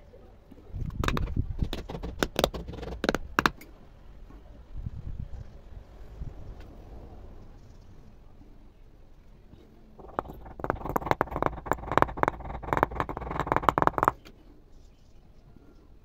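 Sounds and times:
wooden handle tapping on glass: 1.8 - 3.5.

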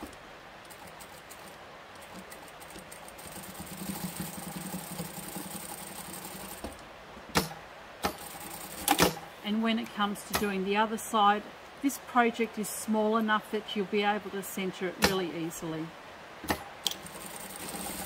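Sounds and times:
sewing machine humming: 0.0 - 6.8, 8.0 - 9.2, 16.9 - 18.0.

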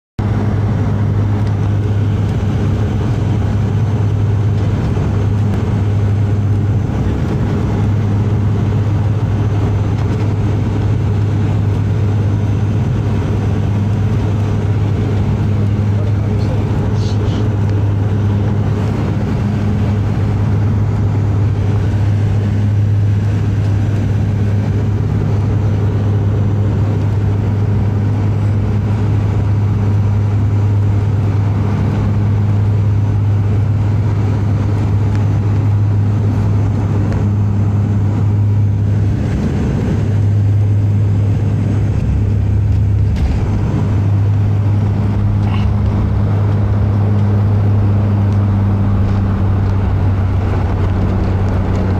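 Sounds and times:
turboprop cabin drone: 0.2 - 51.9
aircraft touching down with a knock: 41.4 - 51.9.

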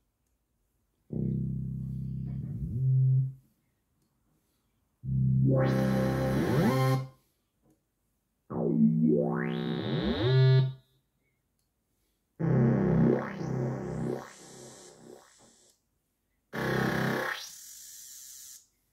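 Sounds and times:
synth bass sweeping in pitch: 1.1 - 3.4, 5.1 - 7.1, 8.5 - 10.8, 12.4 - 15.4, 16.6 - 17.8.

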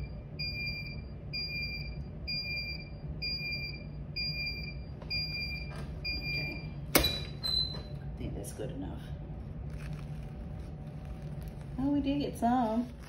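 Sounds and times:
timer alarm beeping: 0.0 - 7.7
steady low hum: 0.0 - 13.0.

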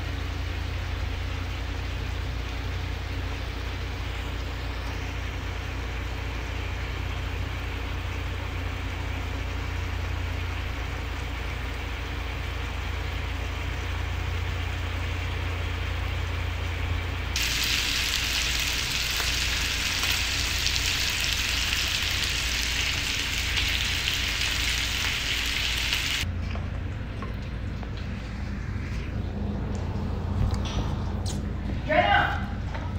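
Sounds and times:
loud steady sizzle: 0.0 - 26.3
steady low hum: 0.0 - 32.9
fish frying in a pan: 17.4 - 26.2.

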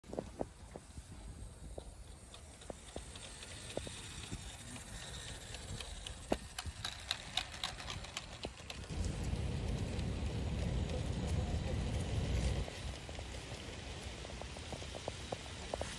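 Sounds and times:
model train wheels clicking: 0.2 - 15.9
low rumble: 8.9 - 15.2.

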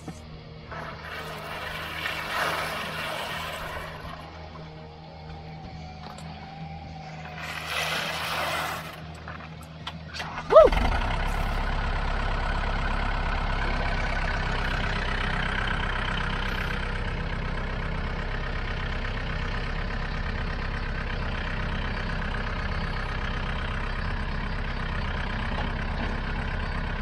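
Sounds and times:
tractor engine running: 0.0 - 27.0.

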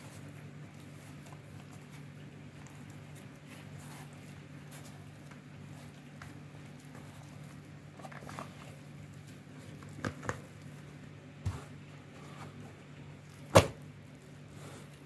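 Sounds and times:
wet dough slapping: 13.3 - 14.3.

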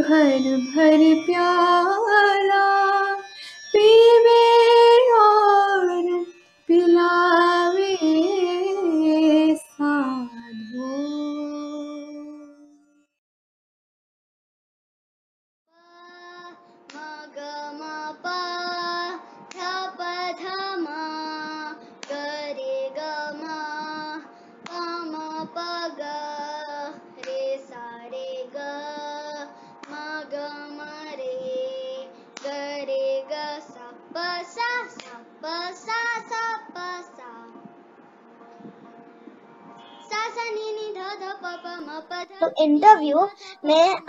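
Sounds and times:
child singing classical melody: 9.8 - 12.6, 15.8 - 37.5, 40.0 - 44.0.

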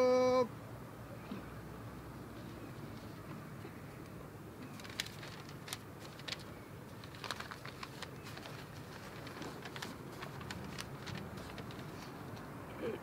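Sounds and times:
paper and objects handled: 4.7 - 12.5.

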